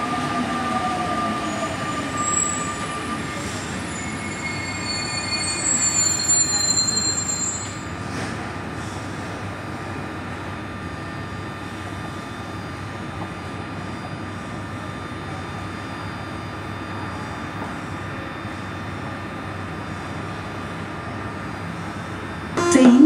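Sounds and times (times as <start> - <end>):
train equipment hum and hiss: 7.8 - 23.0.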